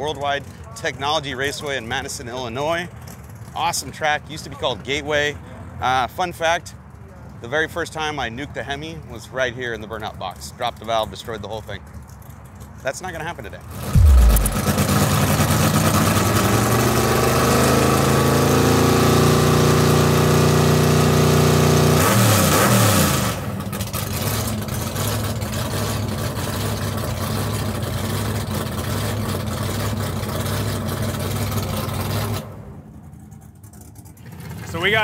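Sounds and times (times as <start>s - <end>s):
car engine revving: 13.8s - 20.2s
loud rush of air: 14.0s - 14.7s.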